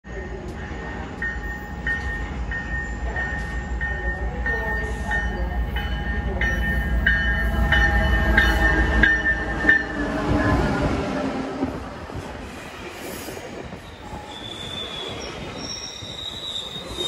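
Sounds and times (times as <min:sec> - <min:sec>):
locomotive bell ringing: 0:00.1 - 0:10.8.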